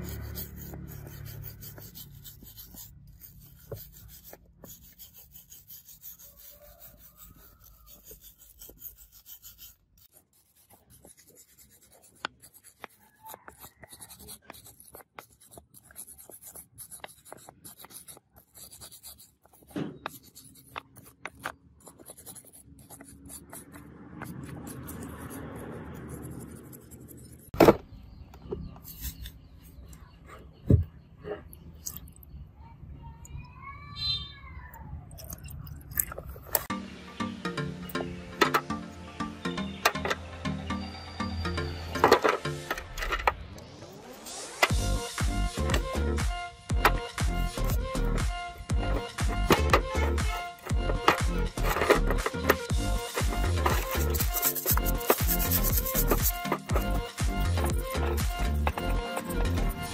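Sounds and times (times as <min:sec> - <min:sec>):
wire brush scrubbing metal: 0:00.0 - 0:27.4, 0:49.5 - 0:59.9.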